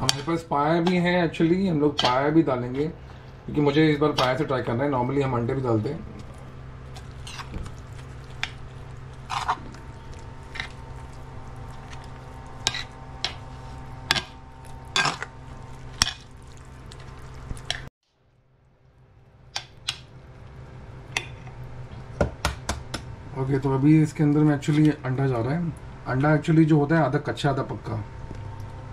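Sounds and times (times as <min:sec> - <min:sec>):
steady low hum: 0:00.0 - 0:28.9
spoon mashing food: 0:06.2 - 0:17.8.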